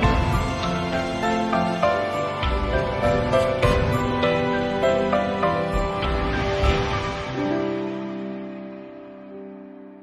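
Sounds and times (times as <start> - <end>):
light percussion: 0.0 - 7.5.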